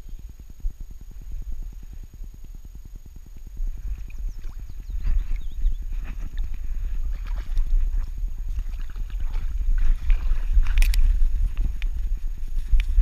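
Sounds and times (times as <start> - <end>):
pulsing rumble through harness: 0.0 - 13.0
dry grass and twigs rustling: 4.9 - 13.0.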